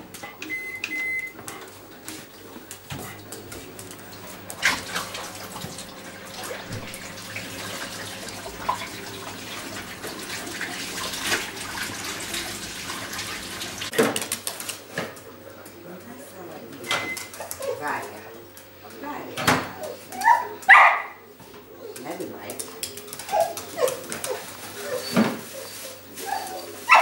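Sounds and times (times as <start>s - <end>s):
tap water running into sink: 4.0s - 14.2s.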